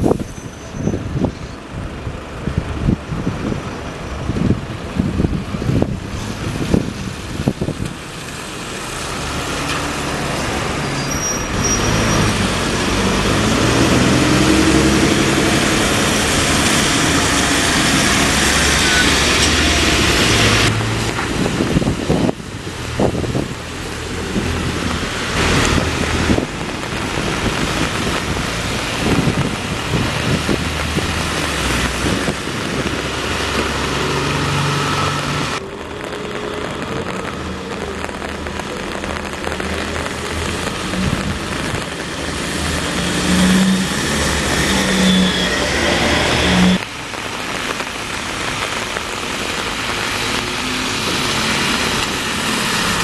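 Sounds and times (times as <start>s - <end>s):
traffic noise: 0.0s - 53.0s
heavy vehicle engine passing: 5.2s - 46.8s.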